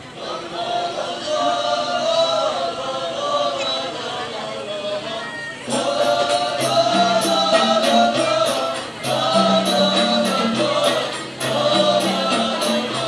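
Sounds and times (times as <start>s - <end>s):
group singing in chorus: 0.0s - 13.0s
percussion beat: 5.7s - 13.0s.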